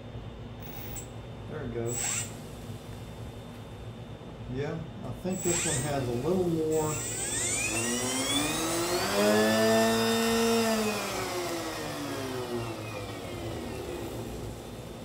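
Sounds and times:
electric motor whining: 0:05.3 - 0:14.7.

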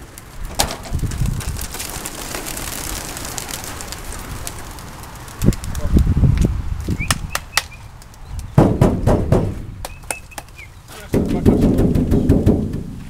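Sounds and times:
sharp claps: 0:07.0 - 0:07.8, 0:08.6 - 0:12.8
knocking on crates: 0:08.6 - 0:10.0, 0:11.0 - 0:13.0.

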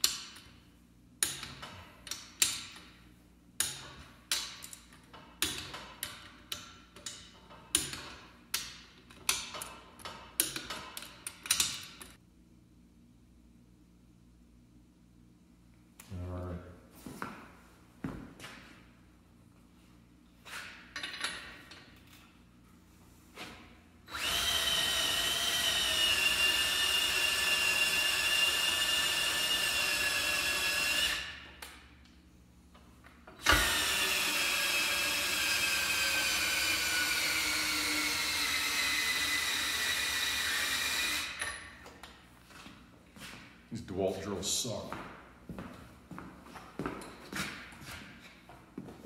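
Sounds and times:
cordless drill whining: 0:24.1 - 0:31.3, 0:33.4 - 0:41.6.

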